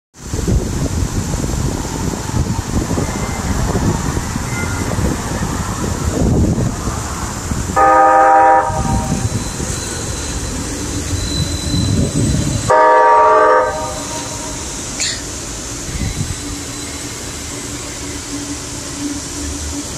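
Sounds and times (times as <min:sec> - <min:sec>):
wind rumbling on microphone: 0:00.2 - 0:12.9, 0:15.7 - 0:16.7
streetcar horn blasts: 0:07.7 - 0:09.5, 0:12.6 - 0:14.6.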